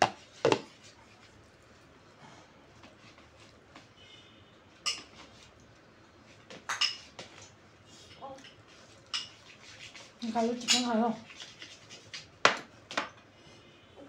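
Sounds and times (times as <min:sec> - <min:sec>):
spoon clinking against bowls: 0:04.8 - 0:05.3, 0:06.7 - 0:07.1, 0:08.1 - 0:09.5, 0:10.5 - 0:12.2.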